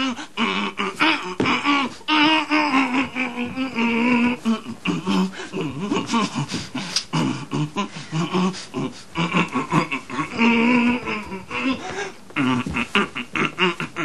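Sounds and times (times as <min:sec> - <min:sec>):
person singing: 0:00.0 - 0:14.0.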